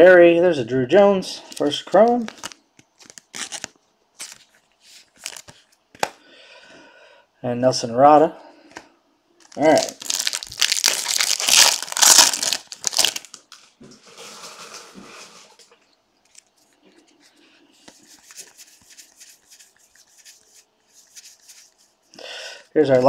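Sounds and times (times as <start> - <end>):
cards rustling and ticking: 1.5 - 6.2, 9.4 - 13.7, 16.2 - 22.1
foil wrapper tearing and crinkling: 2.0 - 5.6, 9.4 - 13.7.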